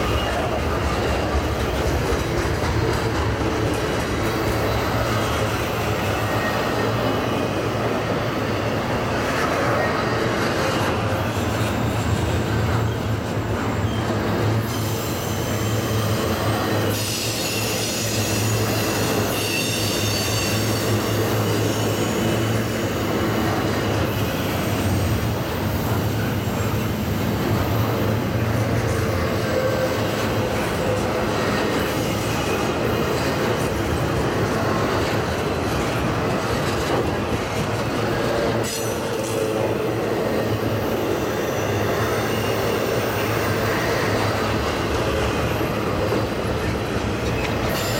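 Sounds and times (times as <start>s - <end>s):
train wheels rumbling on rails: 0.0s - 47.9s
wheel squeal: 9.4s - 24.8s, 38.1s - 47.9s.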